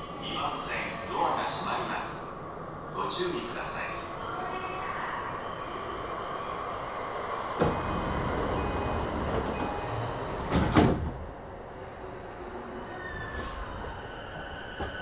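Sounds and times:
steady hum inside train car: 0.0s - 15.0s
train doors thumping shut: 7.6s - 11.3s.

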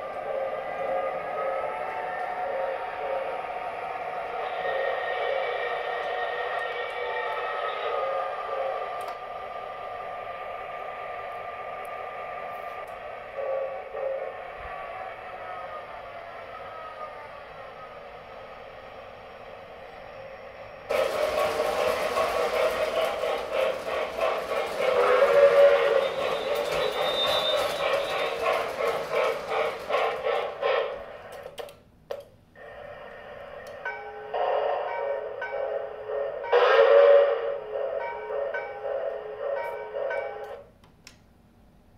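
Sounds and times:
model train running: 0.0s - 31.8s, 32.6s - 40.7s
model train wheels clattering: 20.9s - 32.3s.

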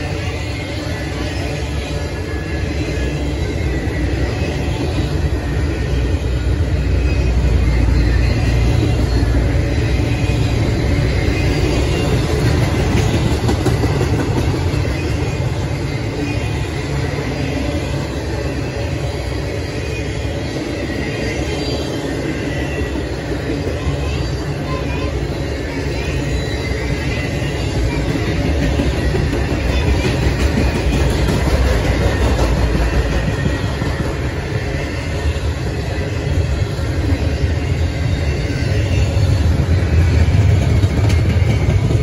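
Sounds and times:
train wheels rumbling on rail: 0.0s - 42.0s.

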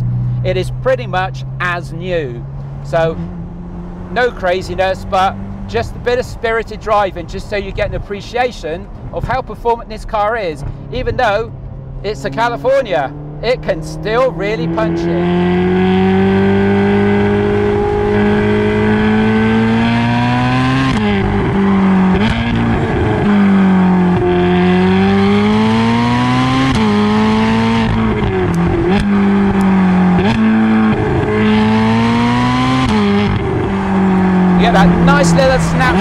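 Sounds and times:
car engine accelerating hard: 11.3s - 36.0s
exhaust snapbacks cracking: 27.6s - 36.0s.

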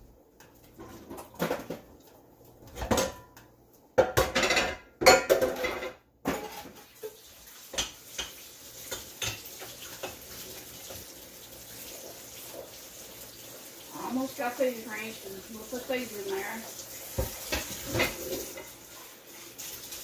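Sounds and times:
kitchenware clanking: 0.8s - 2.0s, 2.6s - 3.4s, 4.0s - 11.1s, 17.1s - 18.8s
faint steady hiss: 6.3s - 20.0s.

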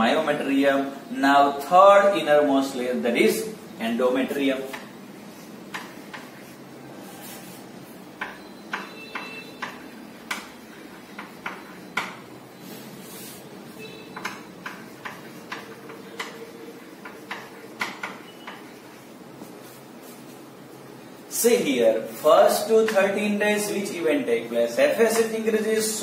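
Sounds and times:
chalk scratching on chalkboard: 4.6s - 7.7s, 12.6s - 20.4s
chalk squeaks: 12.6s - 20.3s.

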